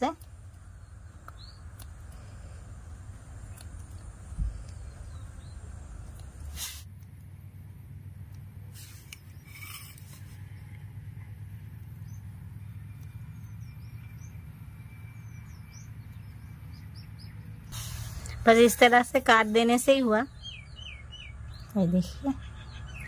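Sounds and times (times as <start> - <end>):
low hum: 0.0 - 23.0
faint bird chirps: 19.9 - 23.0.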